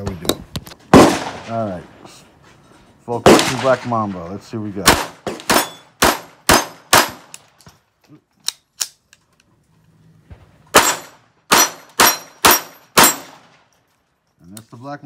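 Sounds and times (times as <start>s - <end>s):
pistol shots: 0.9s - 1.5s, 3.2s - 4.0s, 4.8s - 7.4s, 10.7s - 13.6s.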